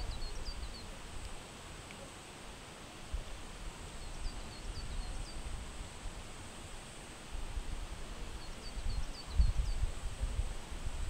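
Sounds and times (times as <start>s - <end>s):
small bird chirping: 0.0s - 0.9s
wind rumbling on microphone: 0.0s - 1.4s, 3.1s - 11.0s.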